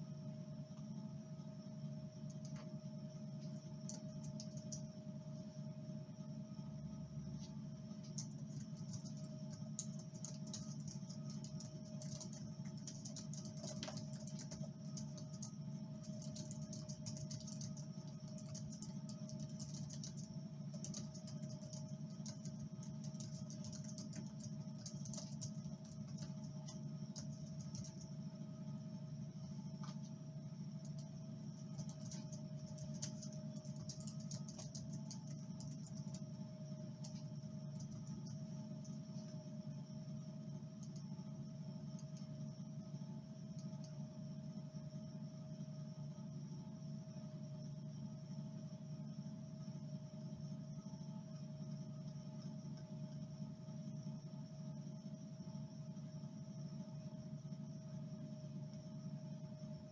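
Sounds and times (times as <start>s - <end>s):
steady low hum: 0.0s - 59.9s
computer keyboard typing: 2.3s - 2.7s, 3.4s - 4.9s, 8.0s - 28.2s, 30.8s - 39.3s, 40.7s - 41.1s, 41.9s - 42.3s, 43.6s - 44.0s.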